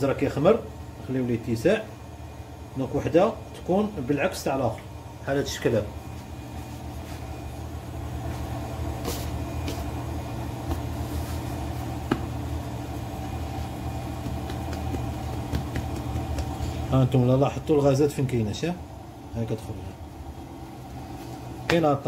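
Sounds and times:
low mechanical hum: 0:00.0 - 0:22.0.

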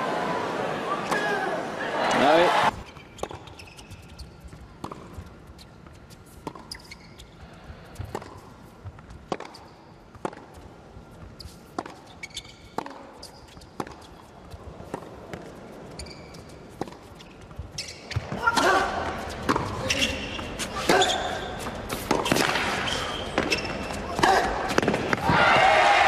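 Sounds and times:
shoe squeaks: 0:02.8 - 0:08.4, 0:11.1 - 0:14.6, 0:15.8 - 0:24.2
tennis ball bouncing: 0:03.2 - 0:05.6, 0:06.4 - 0:07.0, 0:07.9 - 0:15.6, 0:19.2 - 0:21.0, 0:21.9 - 0:25.3
racket striking tennis ball: 0:09.3 - 0:09.6, 0:21.9 - 0:25.3.

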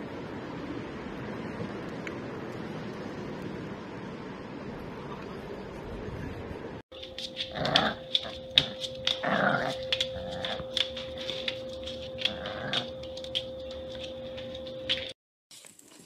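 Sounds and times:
puppy growling: 0:07.3 - 0:11.0, 0:12.1 - 0:13.1.

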